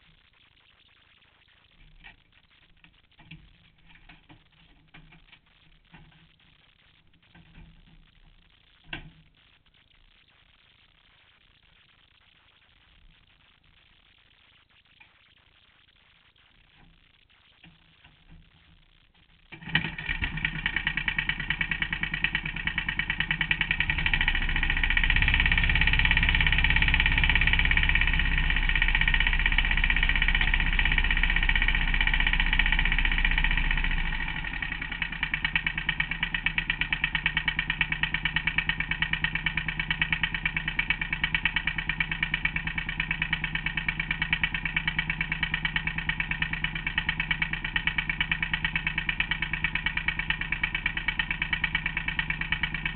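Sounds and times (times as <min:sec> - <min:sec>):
engine running: 0:01.8 - 0:09.2, 0:19.5 - 0:52.9.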